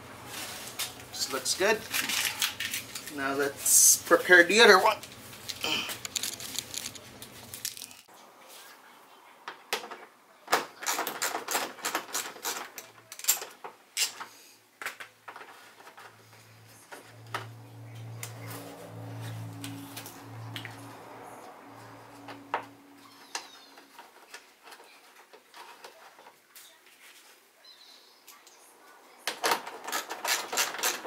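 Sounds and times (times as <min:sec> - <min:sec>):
hands handling plastic and tape: 0:01.8 - 0:03.2, 0:05.0 - 0:08.1
low steady hum: 0:16.0 - 0:24.3.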